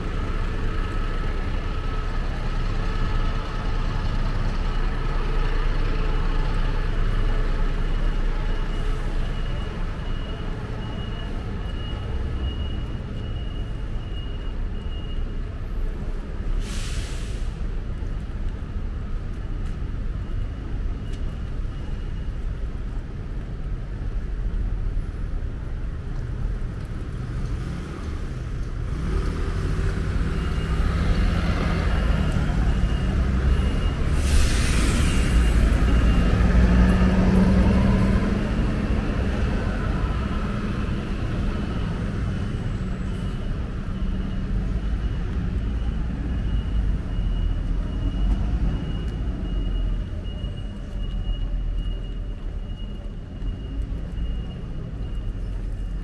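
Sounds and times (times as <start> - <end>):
traffic rumble: 0.0 - 56.0
air brake hiss: 16.5 - 17.6, 34.1 - 35.6
faint repeating high beep: 43.2 - 56.0.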